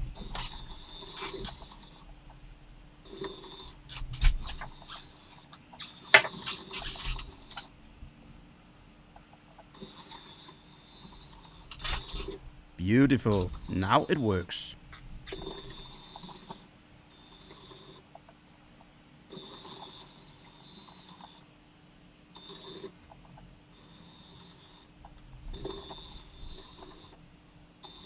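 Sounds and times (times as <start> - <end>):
toy train motors hissing and clicking: 0.2 - 2.0, 3.1 - 7.7.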